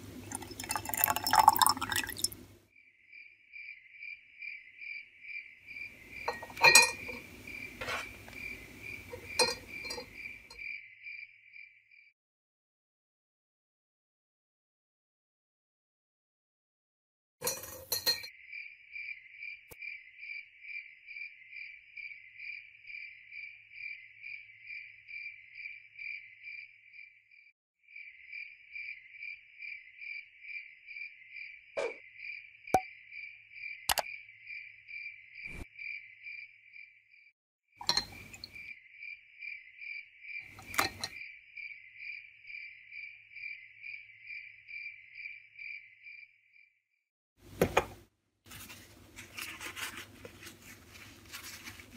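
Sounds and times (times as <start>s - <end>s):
cricket chirping: 0.3s - 12.1s, 17.9s - 46.7s.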